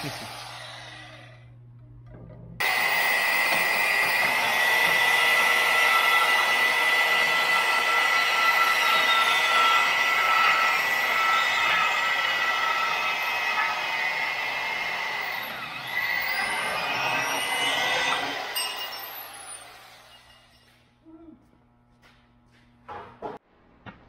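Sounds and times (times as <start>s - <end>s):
band saw cutting metal: 0.0s - 1.4s, 2.6s - 20.6s.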